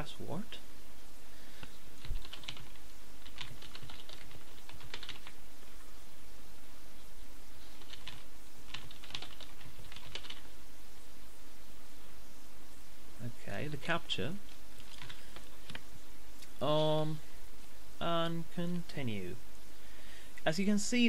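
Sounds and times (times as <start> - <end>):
low background hum: 0.0 - 21.0
computer keyboard typing: 2.0 - 5.4, 7.7 - 10.5, 14.8 - 15.8.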